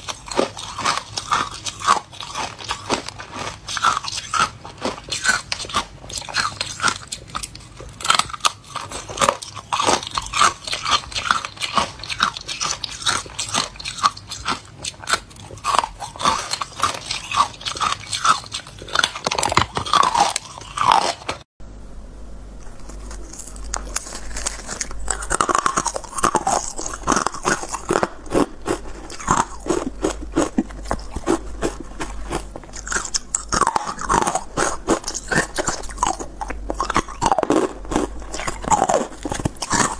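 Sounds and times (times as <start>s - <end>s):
ice crunching and chewing: 0.0s - 21.5s, 22.6s - 39.9s.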